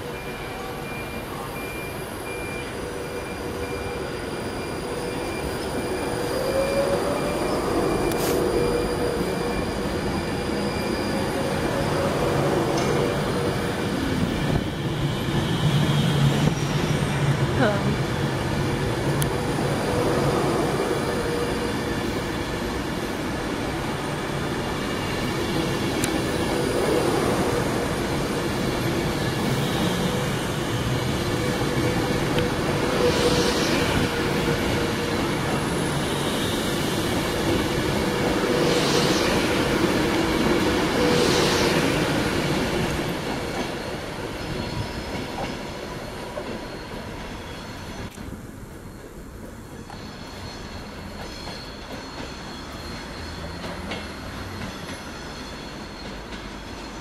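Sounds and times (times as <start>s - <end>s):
constant train hum: 0.0s - 57.0s
train wheels rumbling on rails: 0.0s - 57.0s
high-pitched wheel squeals: 2.6s - 15.0s, 49.8s - 57.0s.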